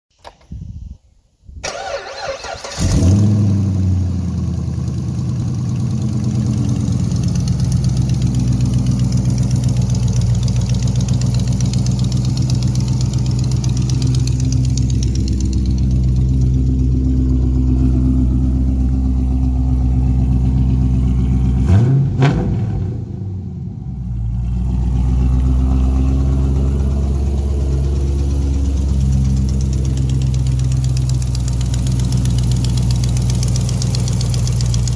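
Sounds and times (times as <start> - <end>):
car engine idling: 1.7 - 34.9.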